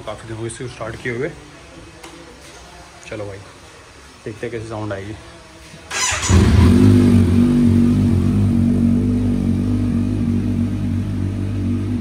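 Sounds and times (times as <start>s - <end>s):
motorcycle engine cold start and idle: 5.9s - 12.0s.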